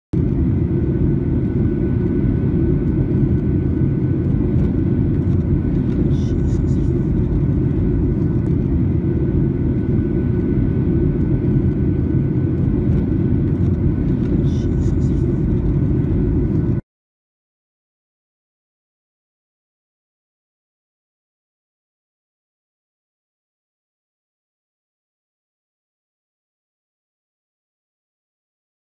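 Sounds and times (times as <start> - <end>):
airliner cabin roar: 0.2 - 16.8
faint steady hum tones: 0.2 - 16.8.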